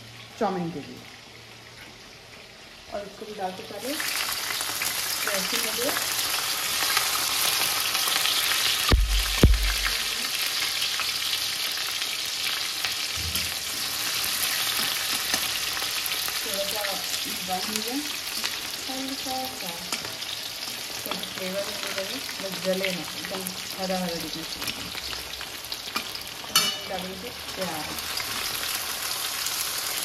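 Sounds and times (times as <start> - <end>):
vegetables sizzling in hot oil: 0.0 - 30.0
sharp knocks: 8.9 - 9.9.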